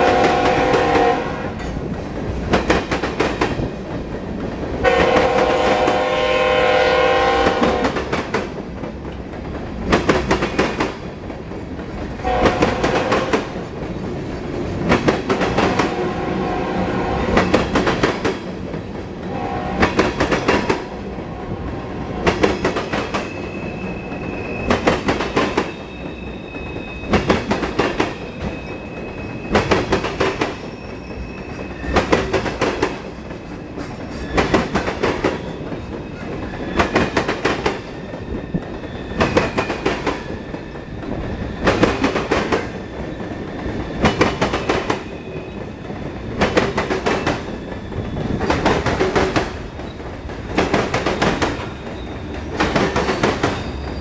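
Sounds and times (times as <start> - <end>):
train wheels clacking over rail joints: 0.0 - 16.1, 17.2 - 54.0
train rolling rumble: 0.0 - 54.0
high wheel squeal: 23.1 - 27.4, 28.2 - 29.8, 30.6 - 32.1, 53.6 - 54.0.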